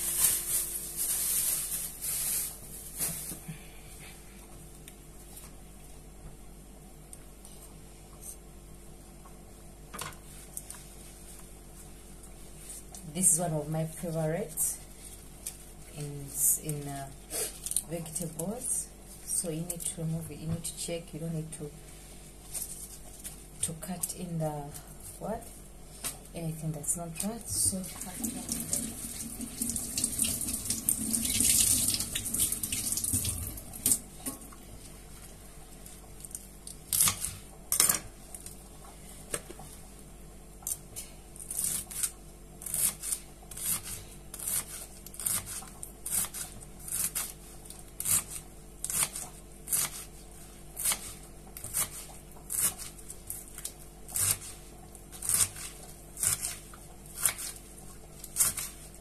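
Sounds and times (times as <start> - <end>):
tap water running: 28.0 - 34.0.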